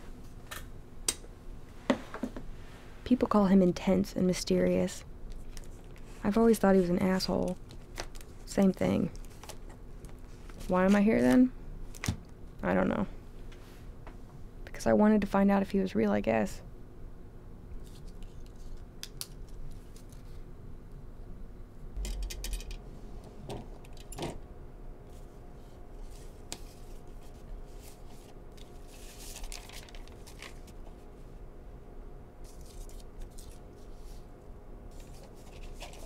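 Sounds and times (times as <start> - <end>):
faint steady hum: 0.0 - 36.0
paper rustling: 26.0 - 31.0, 32.4 - 34.3, 34.9 - 36.0.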